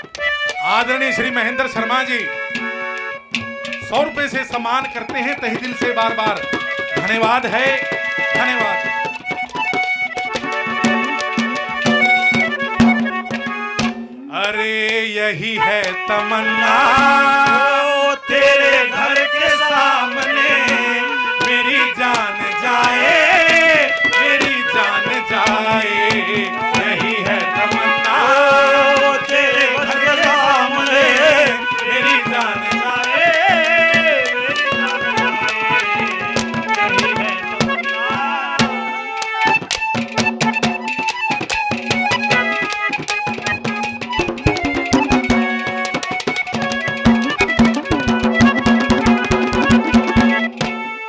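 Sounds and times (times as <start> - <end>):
hand drum and clay pot percussion: 0.0 - 17.8, 19.0 - 50.9
harmonium drone: 0.0 - 51.0
man singing ornamented melody: 14.0 - 39.2.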